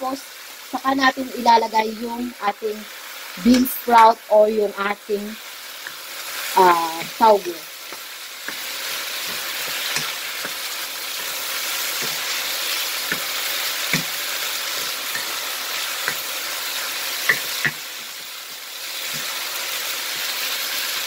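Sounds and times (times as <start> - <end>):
food sizzling in frying pan: 0.0 - 21.0
spatula knocking on pan: 12.0 - 12.3, 13.0 - 14.2, 16.0 - 16.3, 17.2 - 17.8.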